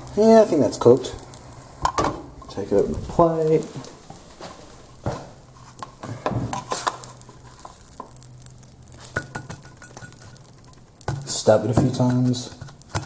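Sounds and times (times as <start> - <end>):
spatula clattering in frying pan: 9.1 - 11.2.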